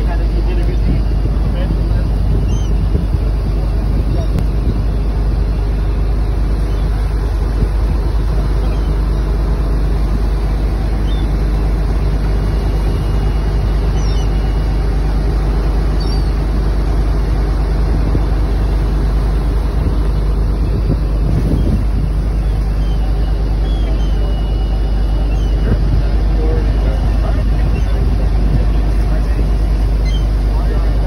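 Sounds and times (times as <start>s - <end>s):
boat engine droning: 0.0s - 31.0s
water rushing along hull: 0.0s - 31.0s.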